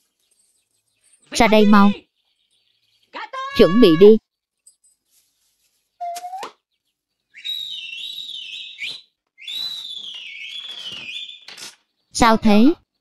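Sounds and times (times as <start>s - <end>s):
long high whistles: 7.4s - 11.5s.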